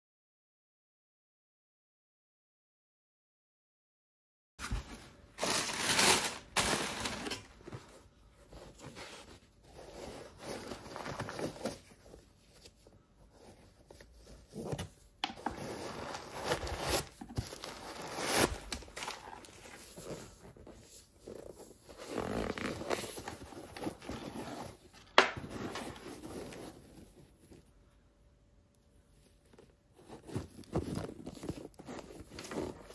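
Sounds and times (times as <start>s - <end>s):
paper rustling and crinkling: 4.6s - 27.7s, 29.5s - 32.9s
cardboard scraping: 14.3s - 27.2s.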